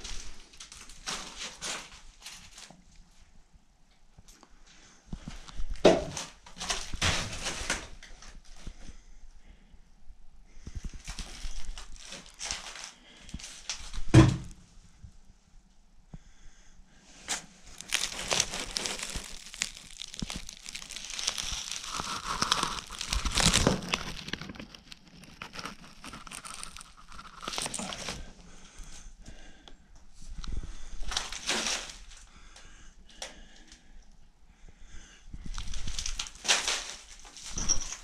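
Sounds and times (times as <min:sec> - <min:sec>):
debris crunching and crinkling: 0:00.0 - 0:02.9, 0:05.3 - 0:08.8, 0:10.8 - 0:14.4, 0:17.2 - 0:29.0, 0:30.2 - 0:32.3, 0:35.4 - 0:38.0.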